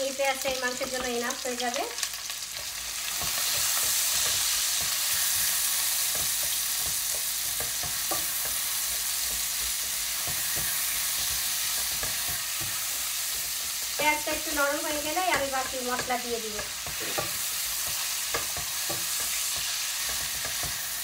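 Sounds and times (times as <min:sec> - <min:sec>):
onions sizzling in hot oil: 0:00.0 - 0:21.0
spatula scraping and knocking pan: 0:02.6 - 0:21.0.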